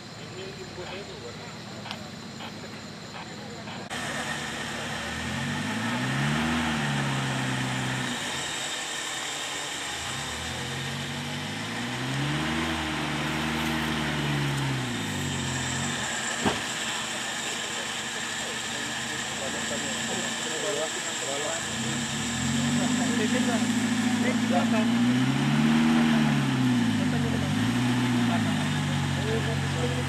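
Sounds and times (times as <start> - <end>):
vehicle engine revving: 0.0 - 30.0
sharp knock: 16.4 - 16.7.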